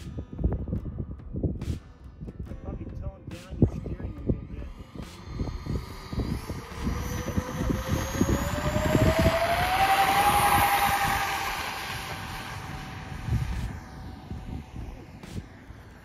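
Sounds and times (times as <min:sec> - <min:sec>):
wind buffeting microphone: 0:00.0 - 0:16.0
model jet fans whining: 0:04.8 - 0:16.0.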